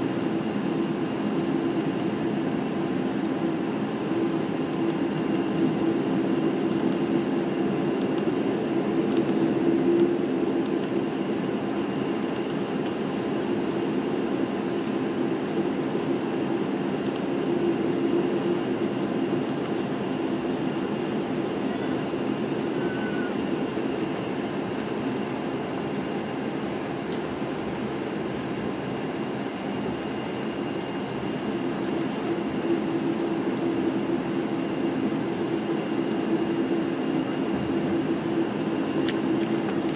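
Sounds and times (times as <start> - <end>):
airplane cabin engine hum: 0.0 - 39.9.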